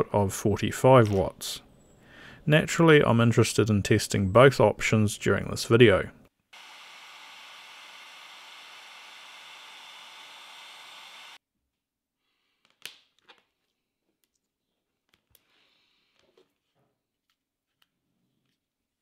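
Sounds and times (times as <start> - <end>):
heat gun blowing: 6.6 - 11.4.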